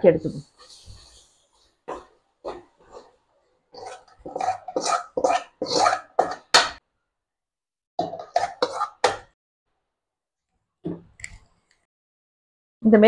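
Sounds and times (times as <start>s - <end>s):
steel spoon scraping a pan: 0.6s - 6.8s, 8.0s - 9.3s.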